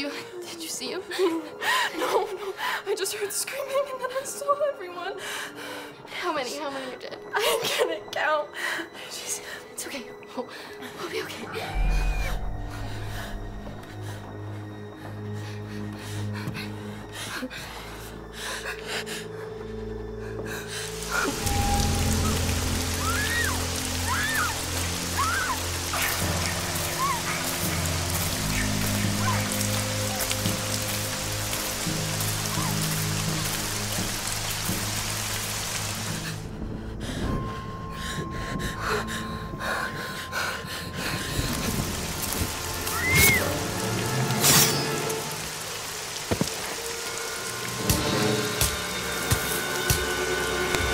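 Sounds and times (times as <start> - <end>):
low horror music drone: 8.5 - 50.9
rain-like hiss: 19.8 - 50.9.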